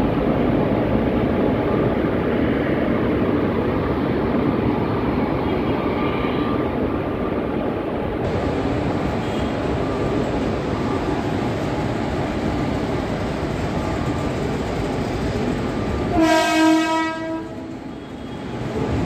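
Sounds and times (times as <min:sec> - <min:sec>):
freight train rumbling past: 0:00.0 - 0:19.0
locomotive horn: 0:16.1 - 0:18.2.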